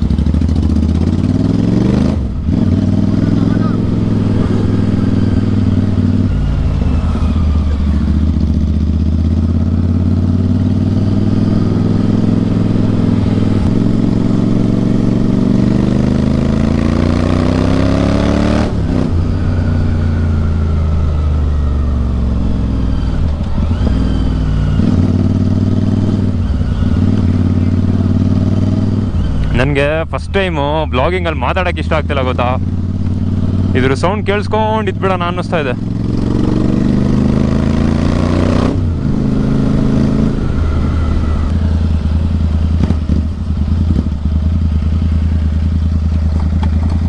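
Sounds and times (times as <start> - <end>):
motorcycle engine exhaust note: 0.0 - 47.0.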